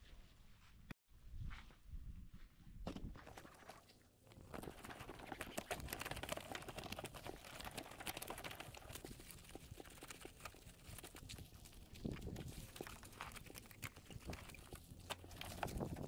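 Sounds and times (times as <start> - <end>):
wet cloth scrubbing soapy foam: 3.4 - 16.0.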